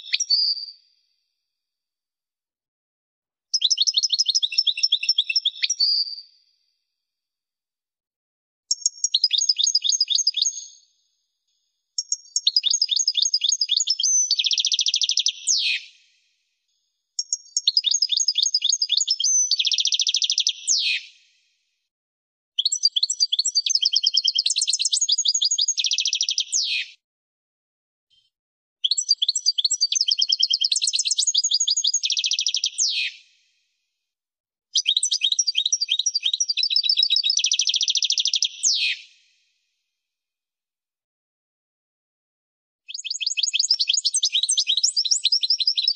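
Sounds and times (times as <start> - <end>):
goldfinch song: 0.0 - 0.9, 3.5 - 6.3, 8.7 - 10.9, 12.0 - 15.9, 17.2 - 21.1, 22.6 - 27.0, 28.8 - 33.2, 34.8 - 39.1, 42.9 - 45.9.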